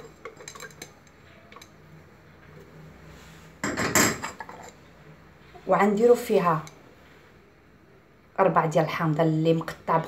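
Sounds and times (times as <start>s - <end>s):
dishes clinking: 0.0s - 1.8s, 3.6s - 4.9s.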